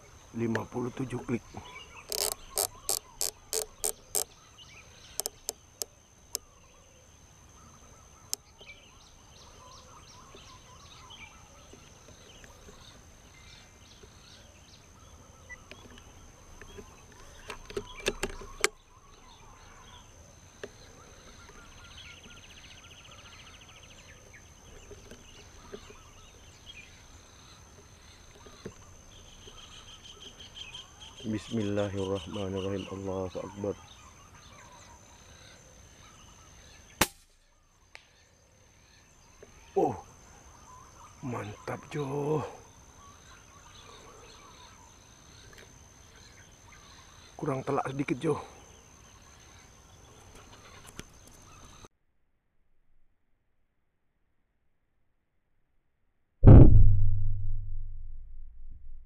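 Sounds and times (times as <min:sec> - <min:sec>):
bird calls: 0:00.0 - 0:51.9
clicks and knocks handling rifle: 0:02.1 - 0:04.3, 0:15.6 - 0:18.8, 0:24.7 - 0:26.0
riflescope turret clicks: 0:02.1 - 0:04.3, 0:05.2 - 0:06.4, 0:16.6 - 0:18.8.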